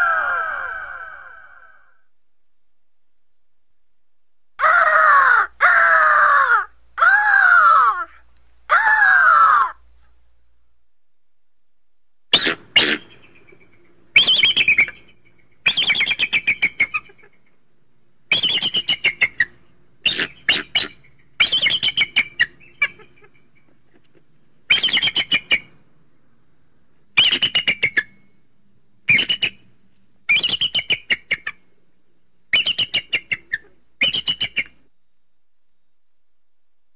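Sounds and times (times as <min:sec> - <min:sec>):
eagle high chattering calls: 0:12.3 - 0:17.5, 0:18.3 - 0:23.8, 0:24.7 - 0:25.7, 0:27.2 - 0:28.2, 0:29.1 - 0:29.7, 0:30.3 - 0:31.7, 0:32.5 - 0:34.8.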